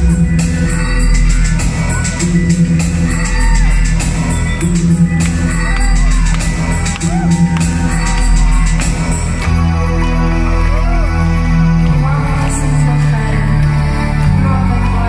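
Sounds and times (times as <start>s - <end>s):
electronic drum beat: 0.0s - 9.7s
synth bassline: 0.0s - 15.0s.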